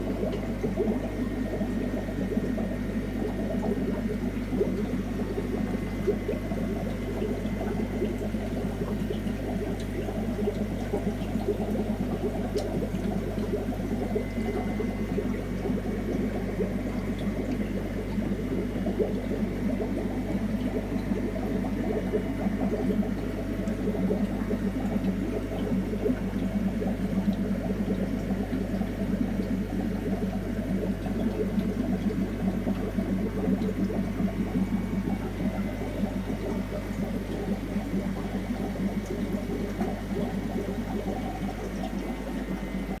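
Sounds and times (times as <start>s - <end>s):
low hum: 0.0s - 28.6s
aquarium filter bubbling: 0.0s - 43.0s.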